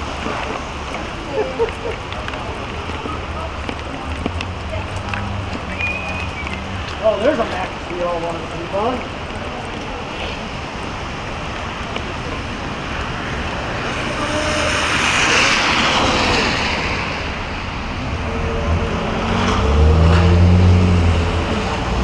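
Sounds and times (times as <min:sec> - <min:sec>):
car tyres hissing on wet road: 0:12.4 - 0:18.4.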